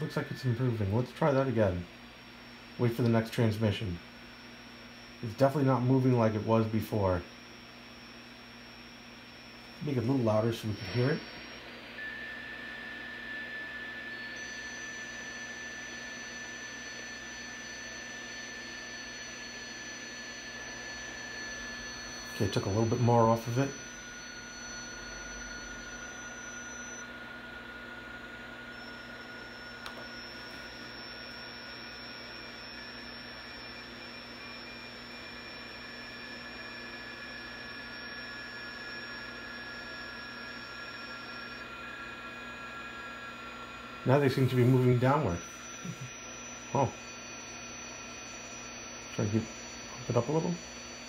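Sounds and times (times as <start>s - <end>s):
steady high digital tone: 9.7s - 27.1s, 42.4s - 51.0s
radio band hiss: 9.8s - 11.9s, 22.2s - 23.8s, 44.0s - 47.1s, 48.7s - 50.6s.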